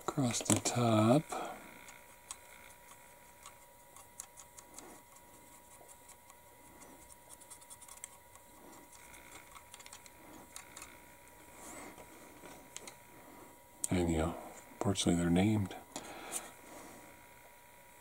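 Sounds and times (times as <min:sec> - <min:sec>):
paint brush scratching: 0:02.1 - 0:10.6.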